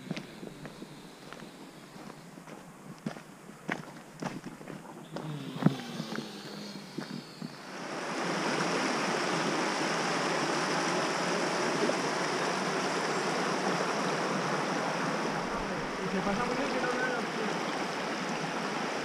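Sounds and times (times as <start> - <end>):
river rushing over stones: 6.1 - 19.0.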